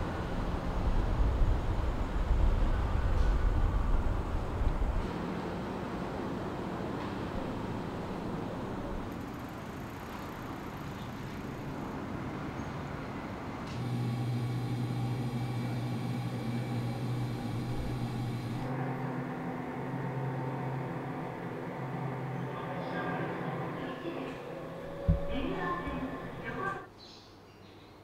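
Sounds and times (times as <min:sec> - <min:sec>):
steady low hum: 0:13.7 - 0:26.9
faint high whine: 0:13.8 - 0:26.9.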